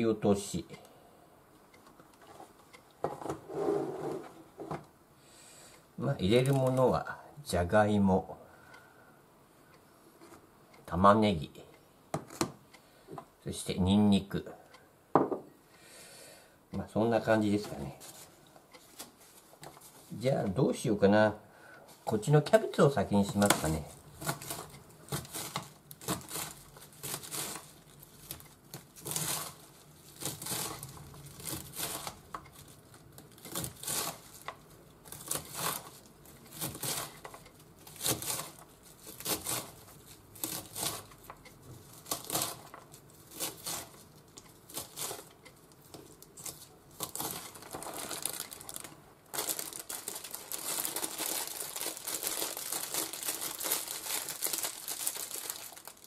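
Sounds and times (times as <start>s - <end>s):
plastic packaging crinkling: 6.3s - 6.8s, 23.1s - 56.0s
knife shredding cabbage on board: 33.4s - 34.3s, 35.1s - 35.9s, 36.5s - 37.3s, 37.9s - 41.2s, 42.0s - 44.1s.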